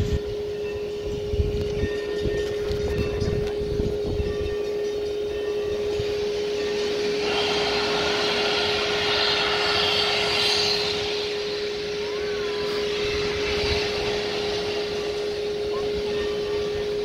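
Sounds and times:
steady tone: 3.6 - 17.0
locomotive steam hissing: 4.9 - 17.0.

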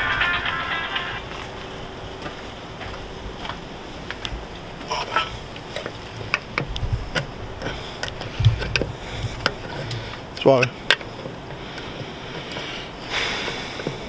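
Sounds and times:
hand tools clinking on metal: 0.0 - 1.5.

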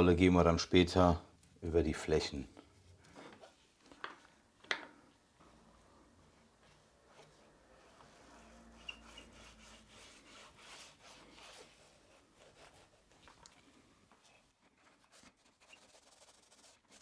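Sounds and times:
paint roller rubbing on wood: 6.8 - 13.2, 14.8 - 17.0.

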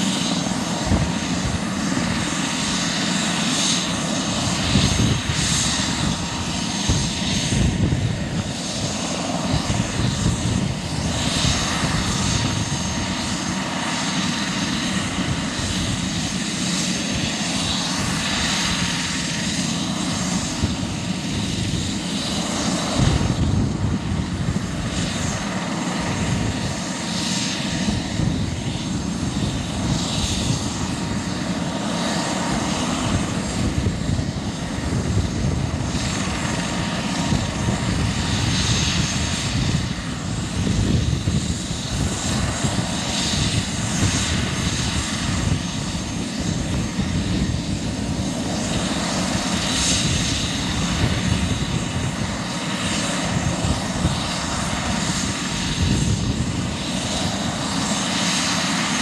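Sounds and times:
helicopter turbine whine: 0.0 - 59.0.

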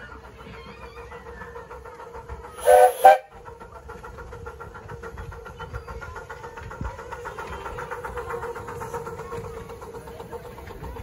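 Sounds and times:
locomotive rhythmic beat: 0.0 - 11.0
steam locomotive whistle: 2.6 - 3.4.

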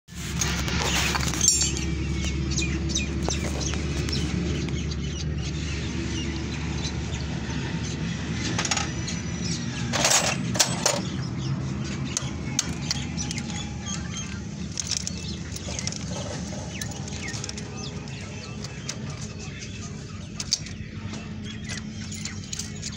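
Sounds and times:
metal tools scraping on engine: 0.1 - 2.3, 9.8 - 11.2, 12.5 - 22.9.

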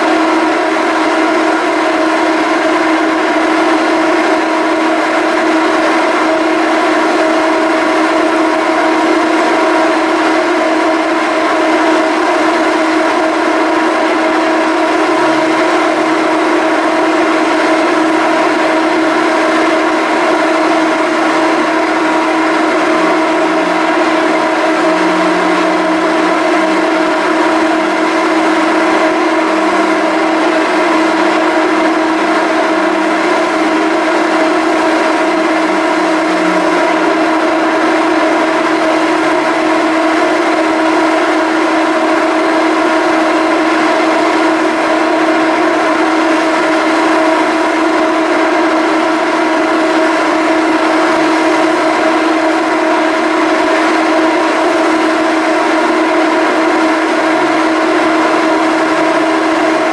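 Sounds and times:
ferry engines droning: 1.1 - 46.9.

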